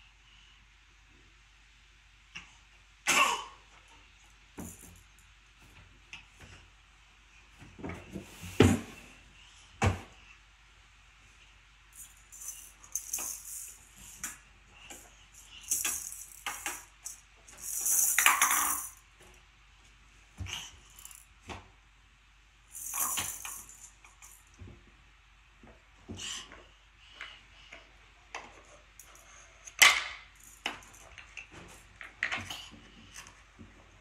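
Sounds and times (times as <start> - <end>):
jingly toy rattling: 12.0 - 19.0, 20.9 - 21.2, 22.8 - 24.4.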